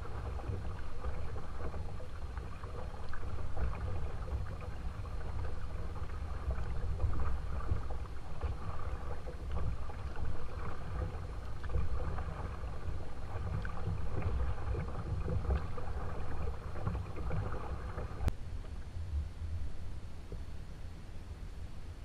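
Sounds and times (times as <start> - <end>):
water splashing along hull: 0.0 - 22.0
wind rumble on microphone: 0.0 - 22.0.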